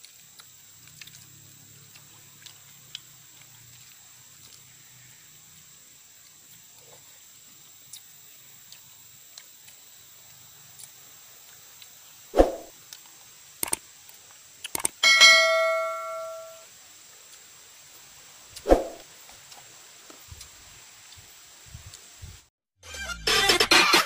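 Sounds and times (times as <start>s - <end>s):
spoon striking steel bowl: 15.0s - 16.6s.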